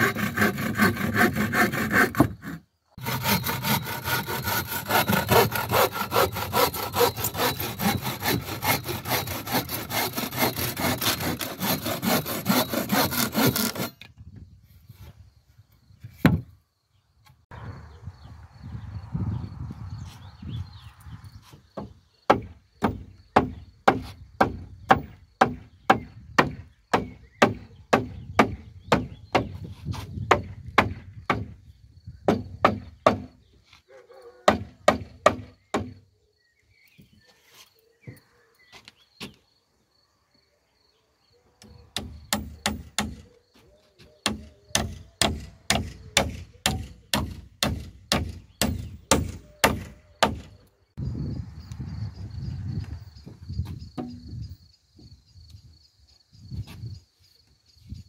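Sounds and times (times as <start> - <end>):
hammer striking nails into wood: 42.0 - 43.3, 44.2 - 50.5.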